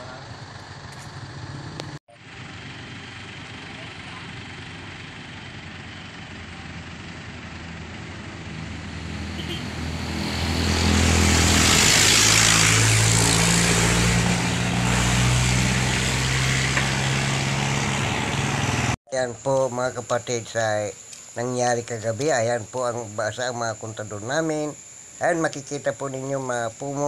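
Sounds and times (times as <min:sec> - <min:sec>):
vehicle engine running: 0:00.0 - 0:19.0.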